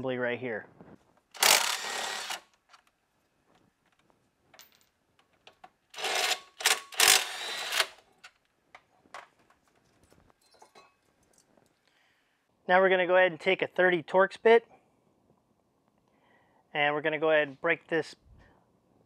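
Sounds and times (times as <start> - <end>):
cordless power tool running: 1.4 - 2.4, 6.0 - 8.0.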